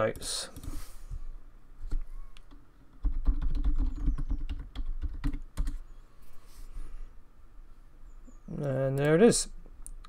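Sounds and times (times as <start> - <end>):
computer keyboard typing: 2.4 - 5.8.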